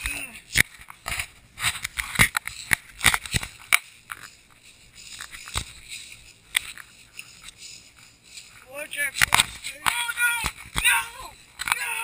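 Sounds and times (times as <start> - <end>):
sharp cracks of twigs: 0.0 - 4.3, 9.2 - 11.9
footsteps crunching: 0.0 - 12.0
brush rubbing against camera: 0.5 - 12.0.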